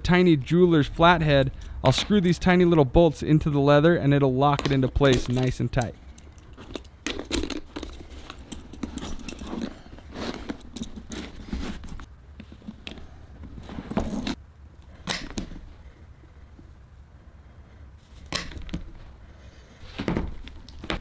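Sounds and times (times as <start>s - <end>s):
metal buckles clinking: 1.2s - 2.4s, 4.5s - 14.4s
leather straps scuffing: 7.6s - 14.4s, 19.8s - 21.0s.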